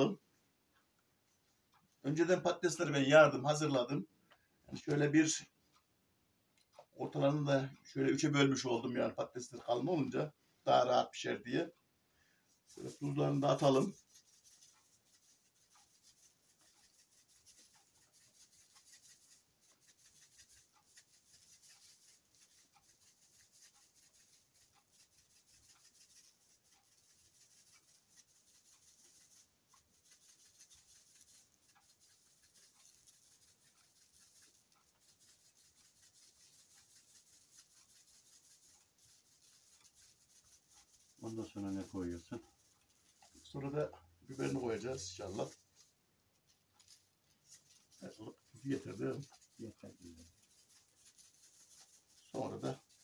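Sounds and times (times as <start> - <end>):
quiet hiss: 0.0 - 53.0
salt grains ticking: 11.4 - 53.0.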